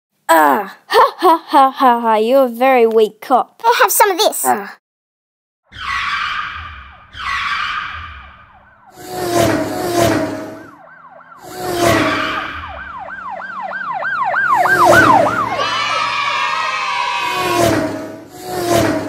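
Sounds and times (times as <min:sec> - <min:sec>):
police siren sweeping: 0:05.7 - 0:19.0
loud noisy bursts: 0:08.9 - 0:10.8, 0:14.6 - 0:19.0.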